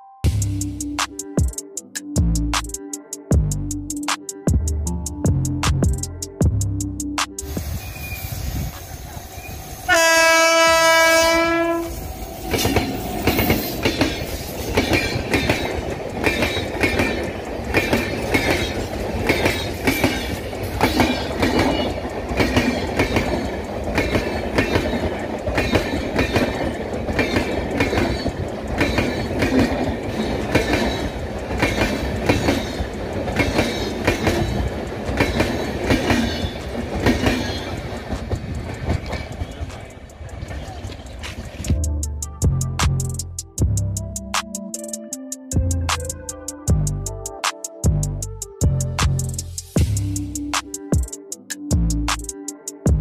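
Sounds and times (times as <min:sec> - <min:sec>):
locomotive horn: 0:09.8 - 0:13.5
train wheels clattering over rails: 0:12.0 - 0:41.7.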